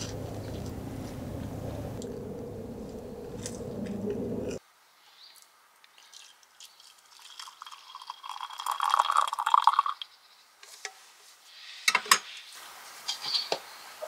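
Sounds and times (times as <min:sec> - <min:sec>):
milk pouring into a mug: 0:06.1 - 0:10.0
kettle and mug clinking: 0:07.2 - 0:09.9.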